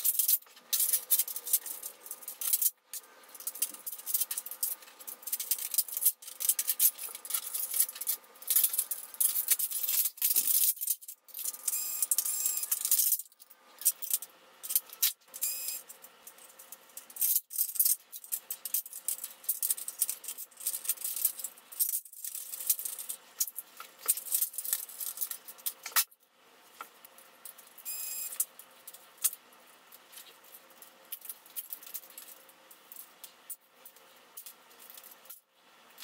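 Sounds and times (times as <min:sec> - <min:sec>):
clicks and rattles of parts: 0:00.0 - 0:26.2, 0:26.8 - 0:36.0.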